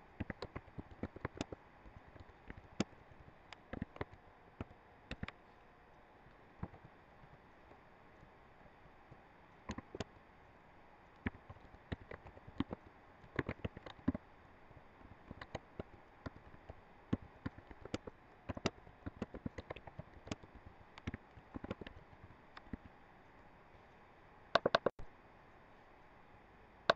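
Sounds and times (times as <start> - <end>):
faint steady hiss: 0.0 - 26.9
keyboard typing: 0.2 - 3.0, 3.6 - 5.4, 9.7 - 10.1, 11.2 - 14.2, 15.3 - 22.9, 24.6 - 24.9.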